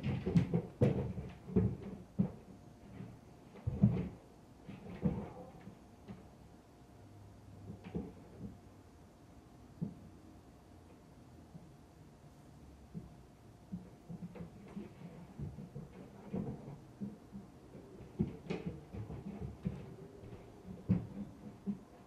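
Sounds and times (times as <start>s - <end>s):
muffled thuds through ceiling: 0.0s - 6.4s, 12.9s - 22.0s.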